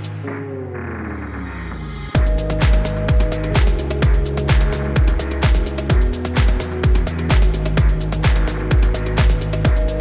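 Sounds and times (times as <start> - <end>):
kick-drum beat: 2.2 - 10.0.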